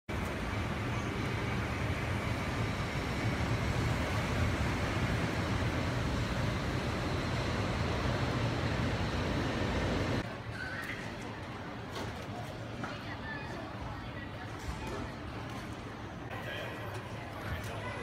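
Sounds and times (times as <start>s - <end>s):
road traffic rumble: 0.1s - 10.3s.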